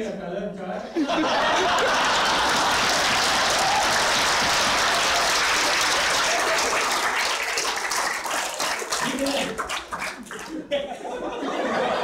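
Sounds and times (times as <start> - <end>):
audience applauding: 1.2 - 10.7.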